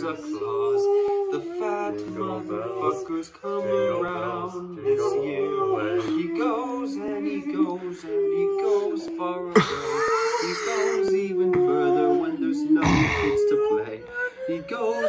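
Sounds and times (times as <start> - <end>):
men singing a cappella: 0.0 - 15.0.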